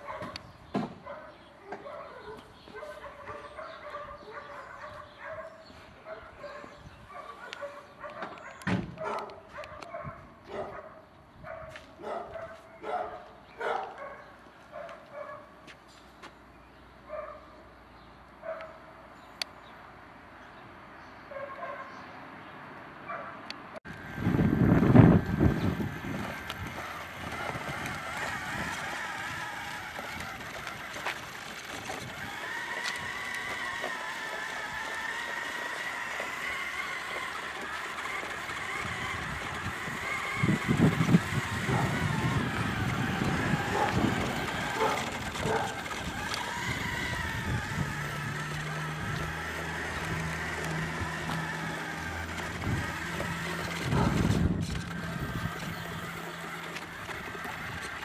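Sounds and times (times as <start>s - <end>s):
model truck motor whining: 23.8s - 58.0s
wind on microphone: 23.9s - 31.0s, 38.7s - 48.4s, 52.4s - 55.9s.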